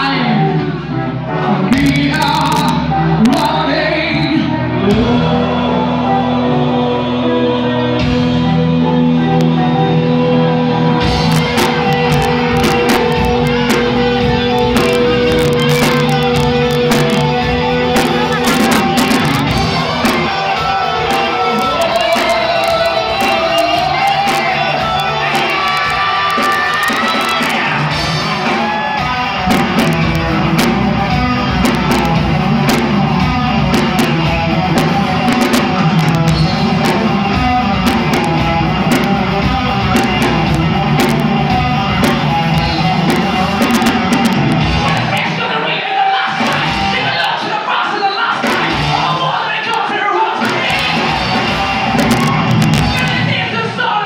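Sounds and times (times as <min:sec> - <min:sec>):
electric guitars: 0:00.0 - 0:53.8
drums: 0:00.0 - 0:54.0
person singing: 0:00.0 - 0:54.0.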